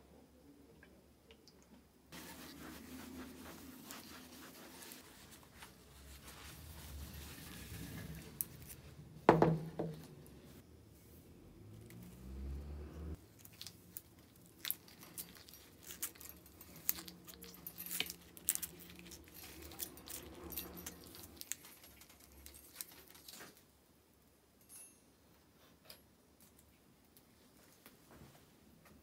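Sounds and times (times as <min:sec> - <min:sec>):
wire rustling: 0:02.1 - 0:10.6, 0:13.3 - 0:23.7.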